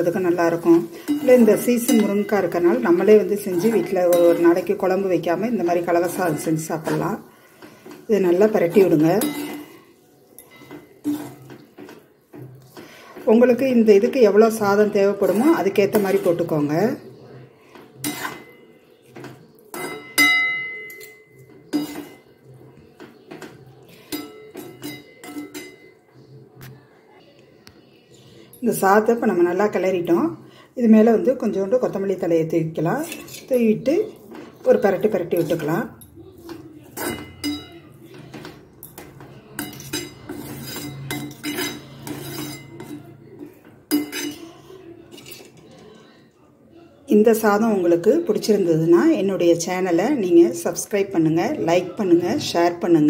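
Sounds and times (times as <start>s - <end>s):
spoon scraping metal pan: 0.0s - 17.0s, 17.6s - 26.0s, 31.2s - 45.9s.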